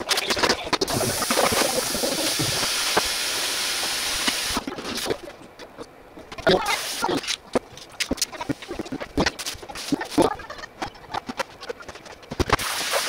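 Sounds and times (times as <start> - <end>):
steady hiss: 0.0 - 5.5, 6.4 - 7.4, 8.2 - 10.4, 12.3 - 13.0.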